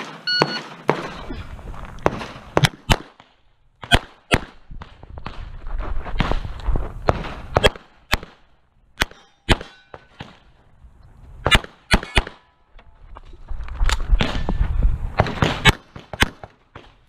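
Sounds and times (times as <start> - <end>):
pistol shots: 0.0 - 1.2, 2.0 - 4.6, 7.1 - 10.4
footsteps on gravel: 0.8 - 2.6, 4.9 - 7.0
metallic ring: 9.1 - 10.2.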